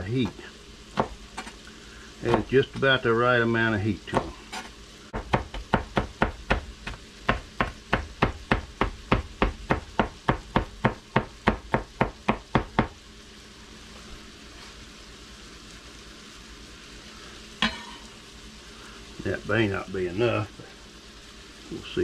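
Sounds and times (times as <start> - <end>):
faint sizzle from pot: 0.0 - 22.0
knife chopping on cutting board: 1.0 - 1.6, 4.1 - 12.9.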